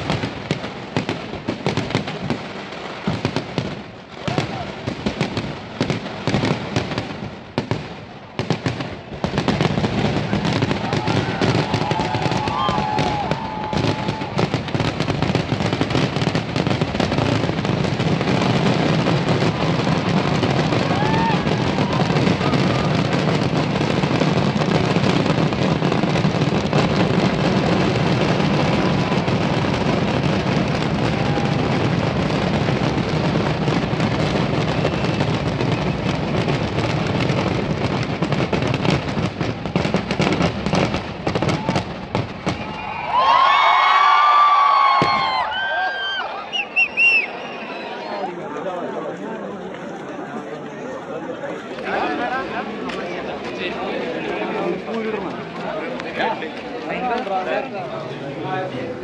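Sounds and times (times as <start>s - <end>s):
firecracker explosions rattling: 0.0s - 43.1s, 44.8s - 45.4s
firework bangs: 0.0s - 45.8s.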